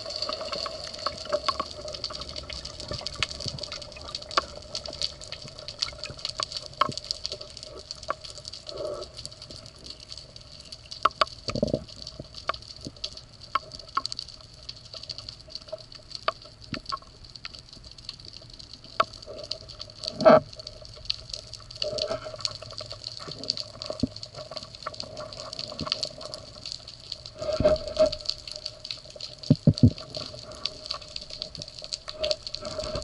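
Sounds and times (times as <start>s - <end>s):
sharp clicks and crackles: 0.0s - 33.0s
underwater hiss: 27.3s - 28.6s.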